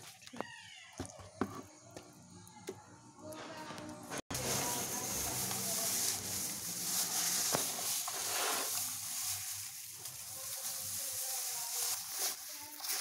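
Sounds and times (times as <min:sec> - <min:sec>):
straw rustling and crackling: 0:04.3 - 0:13.0.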